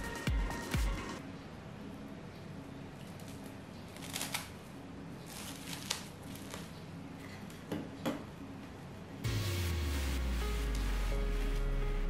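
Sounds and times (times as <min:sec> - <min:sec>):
plastic cling film crinkling: 0:03.2 - 0:04.6, 0:05.2 - 0:06.8.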